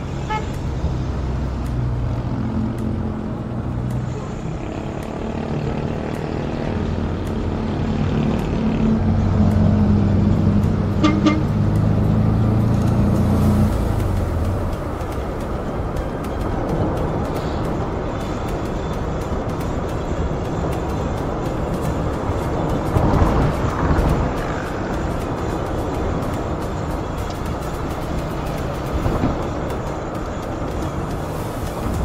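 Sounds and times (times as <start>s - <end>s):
minibus engine running: 0.0s - 32.0s
vehicle horn toots: 0.2s - 0.6s, 10.9s - 11.6s.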